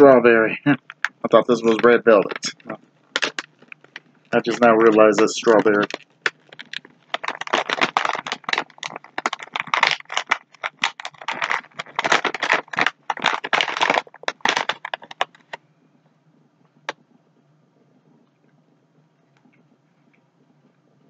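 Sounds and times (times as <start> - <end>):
plastic snack bag crinkling: 0.7 - 15.6.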